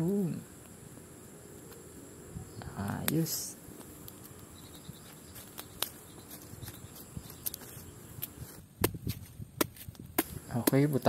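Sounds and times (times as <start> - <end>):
footsteps on grass: 4.9 - 10.5.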